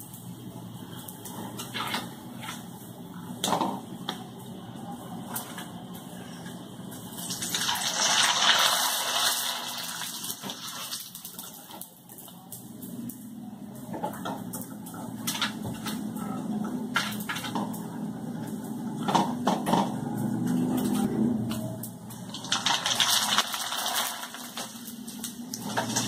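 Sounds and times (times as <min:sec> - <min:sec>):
food sizzling in hot oil: 0:07.0 - 0:12.7, 0:22.0 - 0:26.0.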